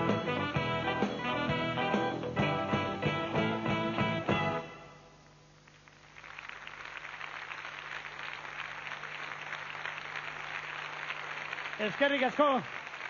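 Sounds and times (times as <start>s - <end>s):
faint steady hum: 0.6s - 13.0s
audience applauding: 5.6s - 13.0s.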